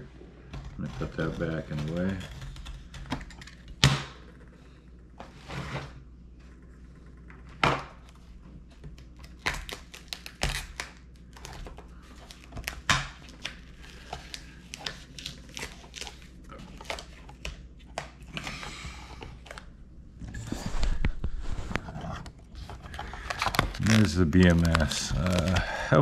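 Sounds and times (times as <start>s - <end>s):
plastic wrap crinkling and rustling: 22.6s - 26.0s.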